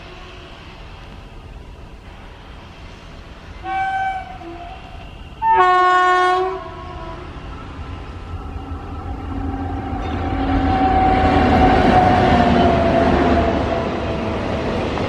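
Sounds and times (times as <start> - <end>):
train low rumble: 0.0 - 15.0
locomotive horn blasts: 3.6 - 7.3.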